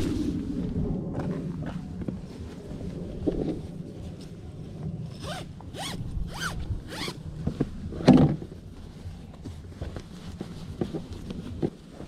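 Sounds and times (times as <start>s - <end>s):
sleeping bag zipper rasping: 5.1s - 7.2s.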